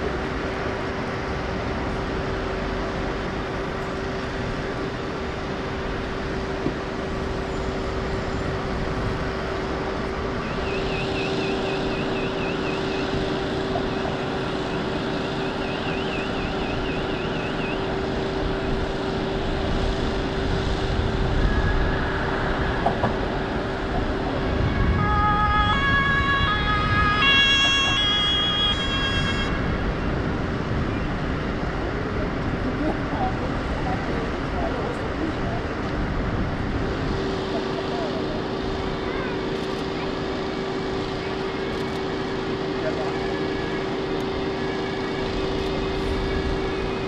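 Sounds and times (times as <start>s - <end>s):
vehicle engines running: 0.0s - 47.0s
faint warbling siren: 10.4s - 18.4s, 24.3s - 29.8s.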